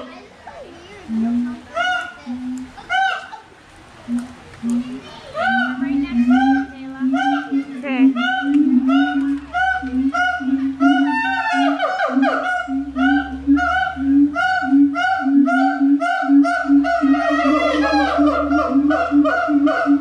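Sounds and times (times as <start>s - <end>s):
gibbons whooping: 4.1s - 20.0s
sliding rising animal calls: 4.1s - 20.0s.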